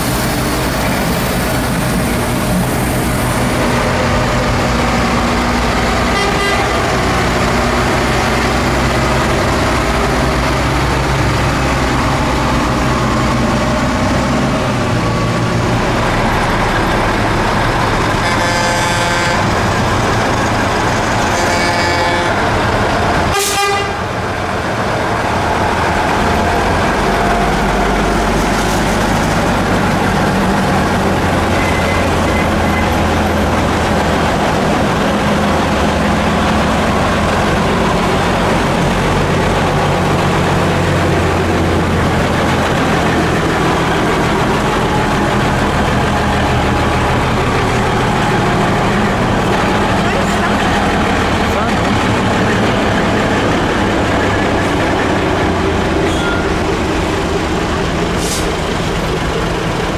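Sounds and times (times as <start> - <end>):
heavy truck engines rumbling: 0.0 - 59.9
horn tooting: 6.1 - 6.9, 18.2 - 19.5, 23.3 - 24.1.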